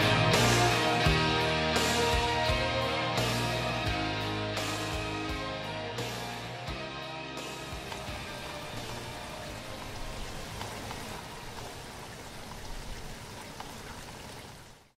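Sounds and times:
steady rain hiss: 7.4 - 15.0
raindrops pattering: 7.6 - 15.0.

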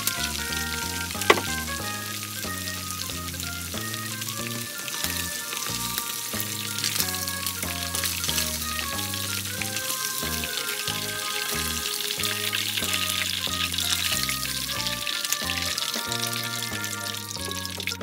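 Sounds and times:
background music: 0.0 - 18.0
chicken sizzling in hot oil: 0.0 - 18.0
sharp knock: 1.3 - 1.6.

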